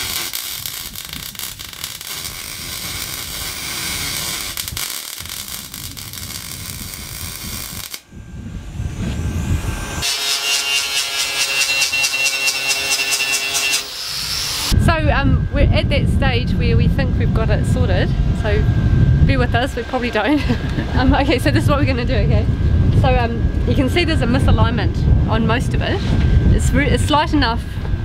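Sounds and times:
welding arc crackling hiss: 0.0s - 8.1s
angle grinder whine: 0.0s - 28.0s.

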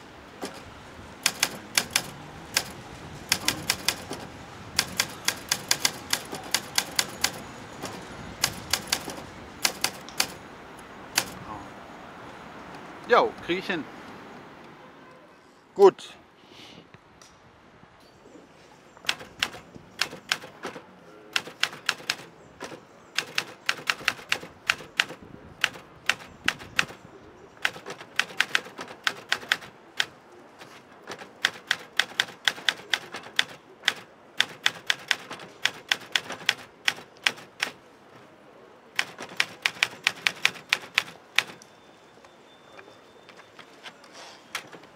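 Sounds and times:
typewriter key strikes: 1.2s - 4.2s, 4.8s - 10.4s.

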